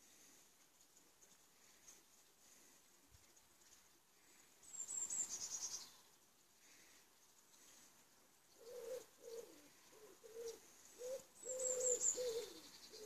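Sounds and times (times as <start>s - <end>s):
small bird chirping: 3.3s - 6.2s, 8.5s - 13.0s
pigeon cooing: 8.6s - 13.0s.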